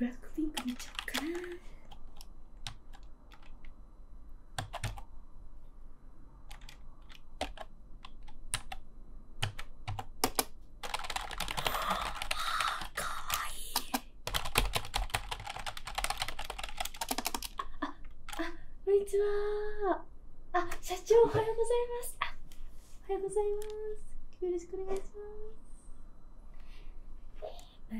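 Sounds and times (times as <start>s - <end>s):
typing on computer keyboard: 0.5s - 3.7s, 4.6s - 5.0s, 6.5s - 8.8s, 9.4s - 18.5s.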